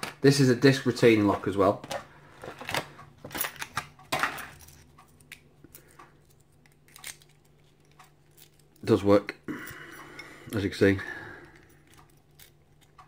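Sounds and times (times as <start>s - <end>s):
padlock clicks and rattles: 2.7s - 8.9s.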